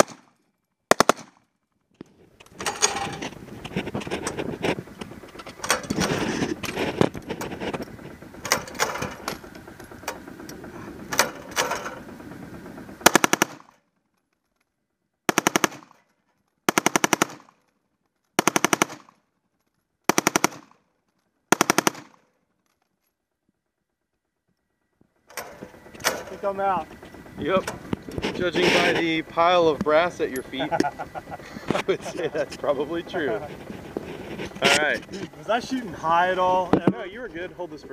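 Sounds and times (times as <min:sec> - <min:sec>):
machine gun firing: 0:00.0 - 0:00.3, 0:00.9 - 0:01.5, 0:12.7 - 0:13.8, 0:15.3 - 0:16.0, 0:16.7 - 0:17.6, 0:18.4 - 0:19.2, 0:20.1 - 0:20.8, 0:21.5 - 0:22.3.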